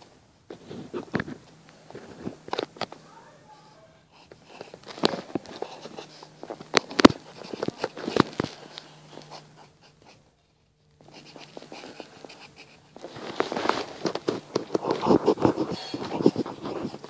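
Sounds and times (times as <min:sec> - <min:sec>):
pencil scratching on paper: 0:05.5 - 0:06.4, 0:07.1 - 0:10.2, 0:11.0 - 0:13.5, 0:14.2 - 0:17.0.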